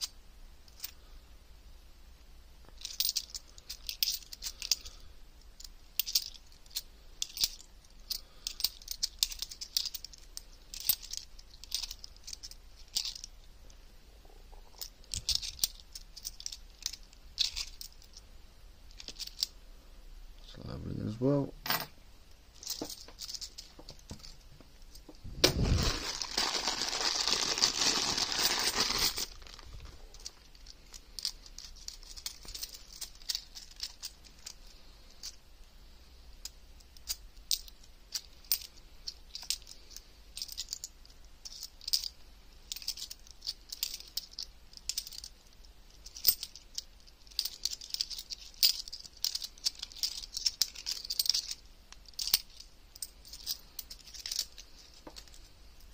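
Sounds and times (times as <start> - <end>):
coins clinking: 2.8 - 5.0, 5.6 - 13.3, 14.7 - 18.2, 22.6 - 25.0, 25.9 - 29.4, 30.1 - 35.4, 37.0 - 45.3, 45.9 - 55.9.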